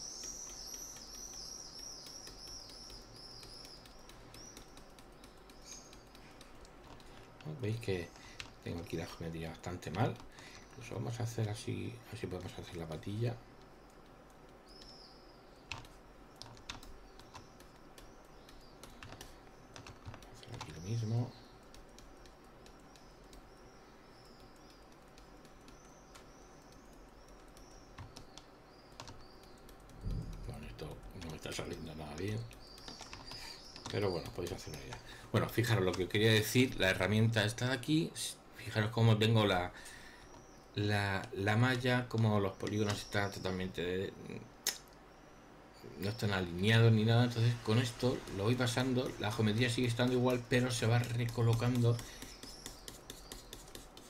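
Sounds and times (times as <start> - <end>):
high-pitched chirping: 0.0 - 4.9
small bird chirping: 0.0 - 38.1, 38.9 - 54.0
mouse and keyboard clicks: 15.7 - 20.9, 21.6 - 30.5.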